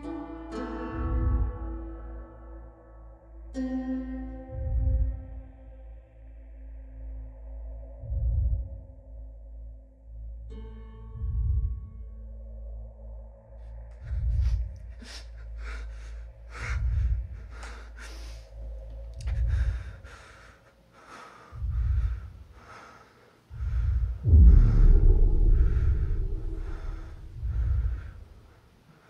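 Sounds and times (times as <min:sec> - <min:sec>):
deep low booms: 0:00.9 - 0:02.1, 0:04.4 - 0:20.5, 0:21.5 - 0:22.8, 0:23.5 - 0:28.6
man breathing heavily: 0:13.9 - 0:29.0.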